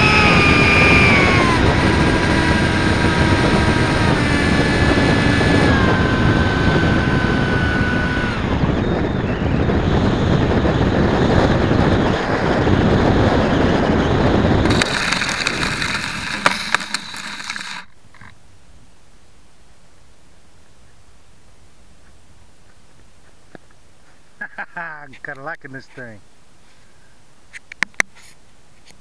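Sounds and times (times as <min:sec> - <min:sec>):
wind rushing: 0:00.0 - 0:17.8
model plane motor whine: 0:00.0 - 0:18.3
airframe scraping across pavement: 0:11.9 - 0:18.3.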